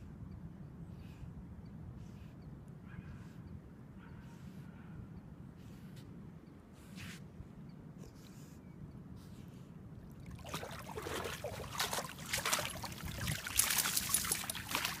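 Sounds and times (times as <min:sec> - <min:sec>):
dog splashing through water: 0:10.3 - 0:15.0.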